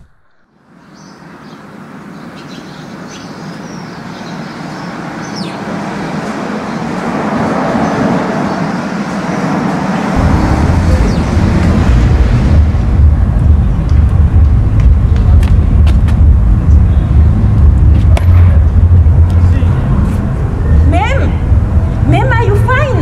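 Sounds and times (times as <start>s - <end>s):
city street traffic: 0.0s - 23.0s
deep rumble: 10.2s - 23.0s.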